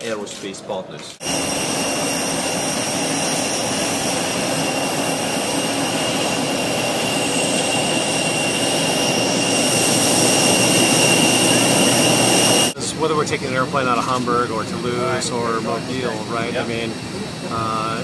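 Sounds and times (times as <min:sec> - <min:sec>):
jet engines whining: 0:00.1 - 0:18.0.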